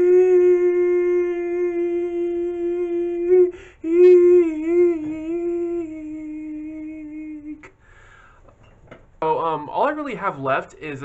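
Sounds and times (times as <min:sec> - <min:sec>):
man singing long note: 0:00.0 - 0:07.7
quick breath: 0:03.5 - 0:03.8, 0:07.7 - 0:08.6.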